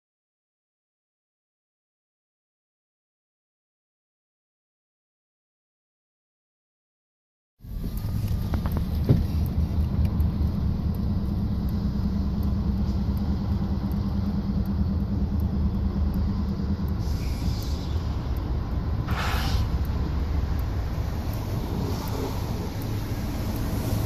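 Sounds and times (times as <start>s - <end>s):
diesel locomotives rumbling: 7.6s - 24.0s
air hiss: 17.0s - 18.4s, 19.0s - 20.0s.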